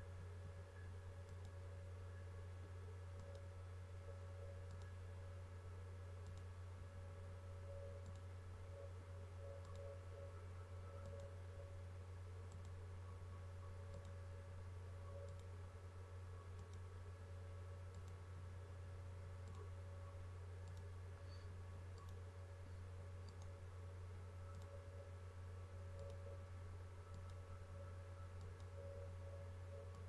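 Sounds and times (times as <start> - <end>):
low electrical hum: 0.0 - 30.0
faint computer mouse clicks: 1.2 - 1.6, 3.2 - 3.5, 4.6 - 5.0, 6.2 - 6.5, 8.0 - 8.3, 9.6 - 9.9, 11.0 - 11.3, 12.5 - 12.8, 13.9 - 14.2, 15.2 - 15.5, 16.6 - 16.9, 17.9 - 18.2, 19.4 - 19.7, 20.6 - 22.2, 23.2 - 23.6, 24.5 - 24.8, 25.9 - 26.3, 27.1 - 27.4, 28.4 - 28.8.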